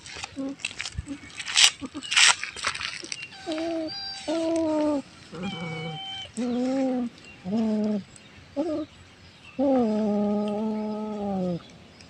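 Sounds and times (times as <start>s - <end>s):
cat yowling: 5.4s - 6.4s.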